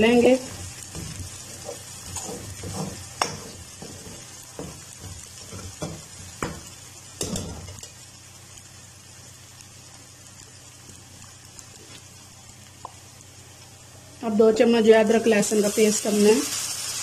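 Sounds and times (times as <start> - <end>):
onions sizzling in hot oil: 0.0 - 17.0
metal spoon scraping pan: 0.5 - 4.8.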